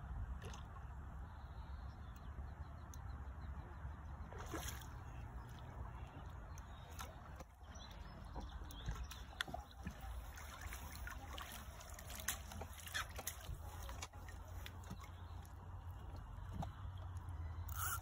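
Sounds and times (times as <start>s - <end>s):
fish splashing in water: 4.3s - 5.7s, 6.7s - 18.0s.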